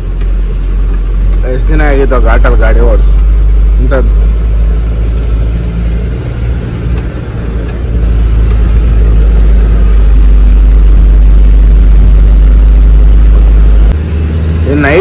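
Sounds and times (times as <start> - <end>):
diesel truck engine rumbling: 0.0 - 15.0.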